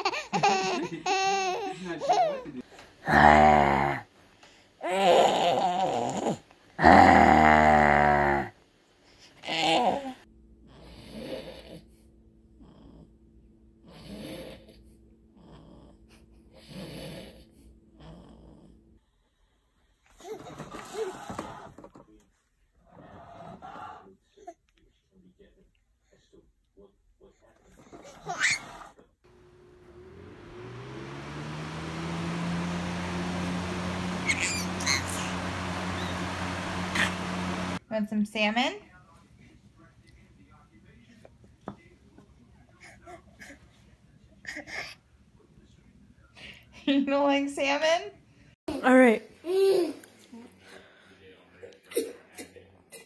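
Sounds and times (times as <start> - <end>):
man snoring: 3.0 - 4.0, 6.8 - 8.5
baby vocal sound: 4.8 - 8.5
electric fan motor hum: 29.3 - 37.8.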